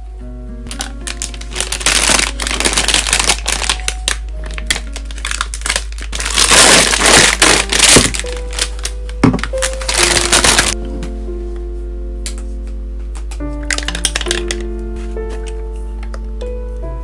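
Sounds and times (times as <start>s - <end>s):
soft music with plucked notes: 0.0s - 17.0s
plastic bag crinkling: 0.7s - 10.8s, 13.6s - 15.5s.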